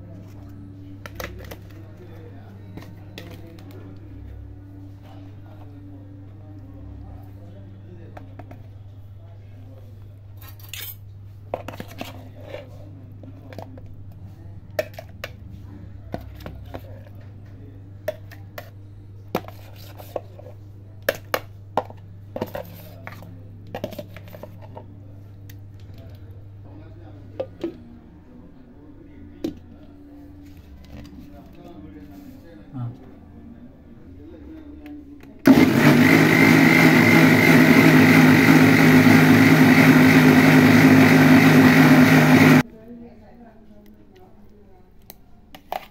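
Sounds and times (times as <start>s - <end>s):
mixer grinder motor whining: 35.4s - 42.6s.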